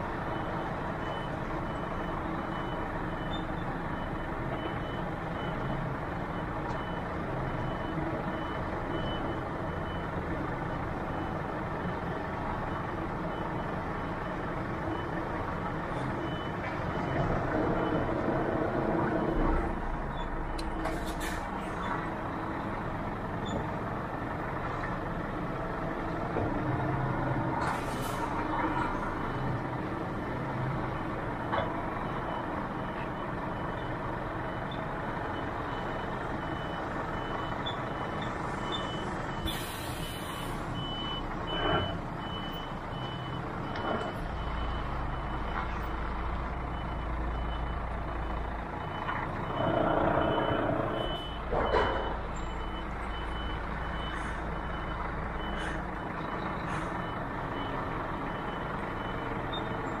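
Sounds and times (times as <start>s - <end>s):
diesel engine running: 0.0s - 60.0s
truck reversing alarm beeping: 0.1s - 23.7s, 25.1s - 60.0s.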